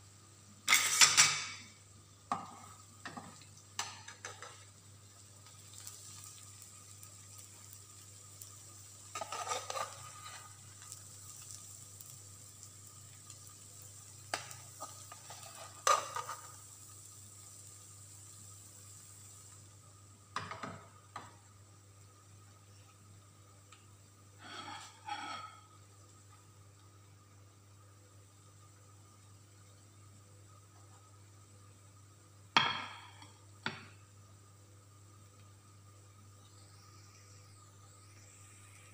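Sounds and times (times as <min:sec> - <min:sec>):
faint sizzle: 0:00.0 - 0:38.9
utensils scraping a plate and pan: 0:00.7 - 0:01.6, 0:09.1 - 0:10.6, 0:14.3 - 0:16.6, 0:24.4 - 0:25.7.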